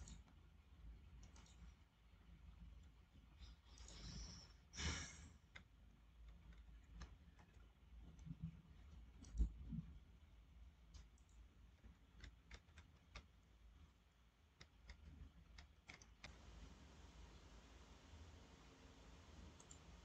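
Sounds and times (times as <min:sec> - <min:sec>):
computer mouse clicks: 0:00.0 - 0:00.4, 0:01.1 - 0:01.8, 0:02.7 - 0:04.6, 0:05.4 - 0:09.9, 0:10.9 - 0:13.5, 0:14.5 - 0:16.4, 0:19.6 - 0:19.9.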